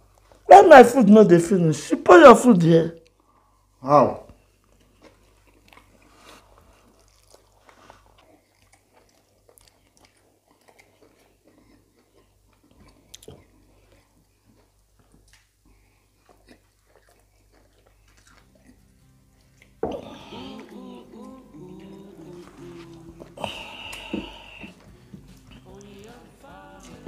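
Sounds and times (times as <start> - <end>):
chewing and wet mouth smacks: 4.6 - 19.8.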